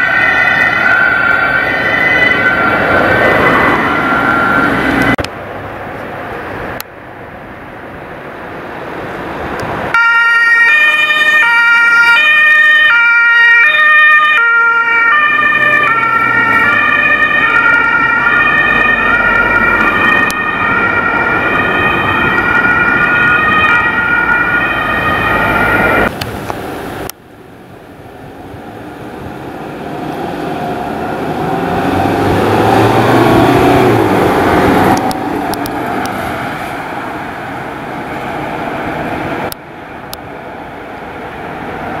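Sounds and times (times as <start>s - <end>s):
two-tone ambulance siren: 0.0s - 5.2s, 9.9s - 26.1s
vehicle noise: 0.0s - 42.0s.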